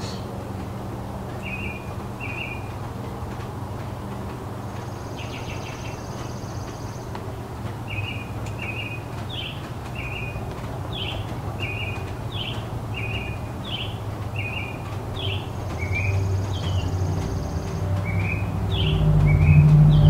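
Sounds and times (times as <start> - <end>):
distant city traffic hum: 0.0 - 20.0.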